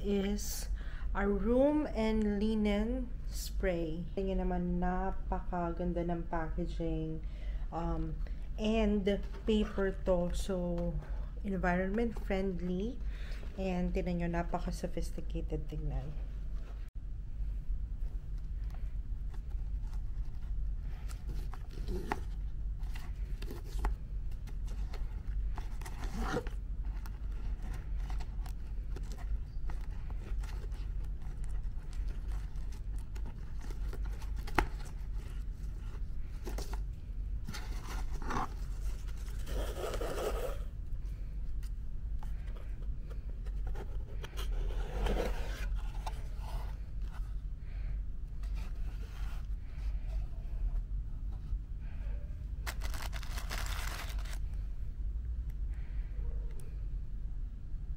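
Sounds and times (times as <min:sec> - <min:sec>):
steady low hum: 0:00.0 - 0:57.9
paper packaging rustling: 0:52.6 - 0:54.4.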